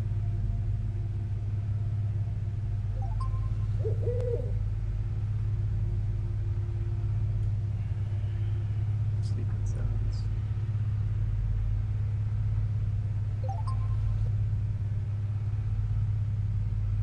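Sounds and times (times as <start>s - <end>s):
low drone: 0.0s - 17.0s
wavering tone: 2.9s - 4.7s, 13.4s - 14.3s.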